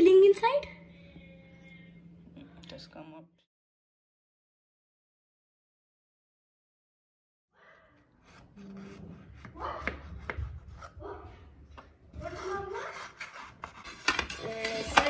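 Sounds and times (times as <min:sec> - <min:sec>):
plastic knife scraping a metal tin: 0:08.2 - 0:09.5, 0:12.2 - 0:15.0.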